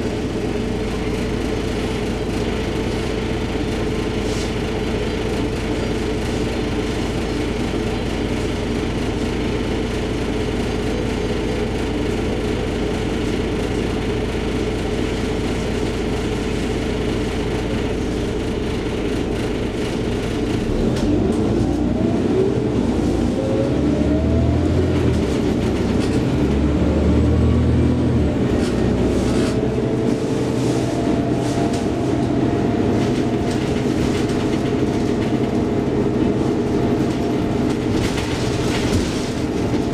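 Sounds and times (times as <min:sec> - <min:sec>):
bus diesel engine: 0:00.0 - 0:39.9
engine whine accelerating: 0:20.4 - 0:39.9.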